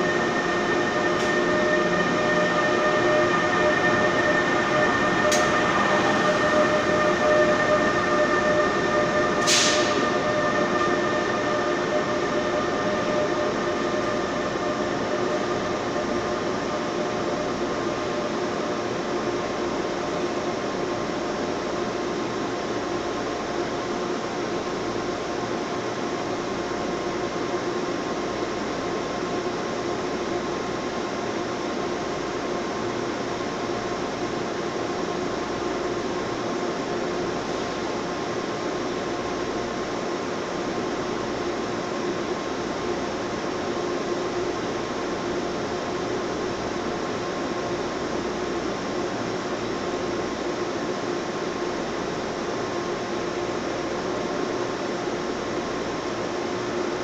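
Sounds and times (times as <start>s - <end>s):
electric train pulling out: 0.0s - 23.5s
mechanical hum with held tones: 0.0s - 57.0s.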